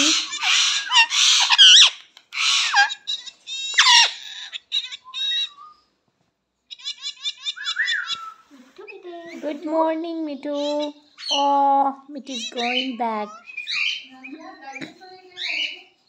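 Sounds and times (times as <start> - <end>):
parakeet screeching: 0.0 - 5.8, 6.7 - 8.4, 10.6 - 11.5, 12.3 - 14.1, 15.3 - 15.8.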